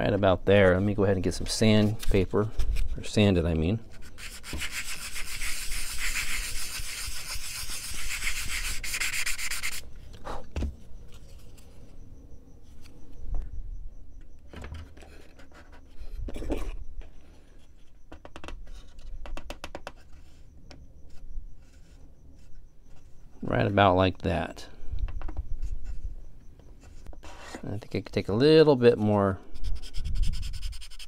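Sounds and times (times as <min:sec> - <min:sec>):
sanding block rubbing wood: 0:04.1 - 0:09.8, 0:29.8 - 0:31.0.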